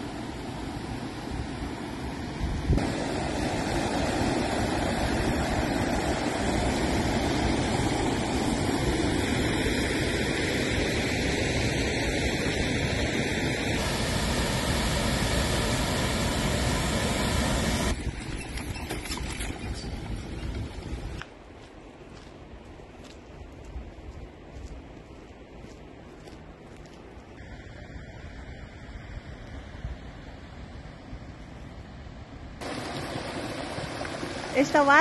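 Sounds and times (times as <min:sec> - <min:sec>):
river rushing over boulders: 0:32.6 - 0:35.0.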